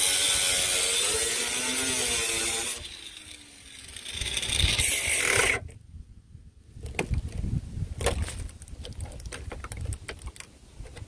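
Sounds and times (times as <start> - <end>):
angle grinder cutting metal: 0.0 - 5.6.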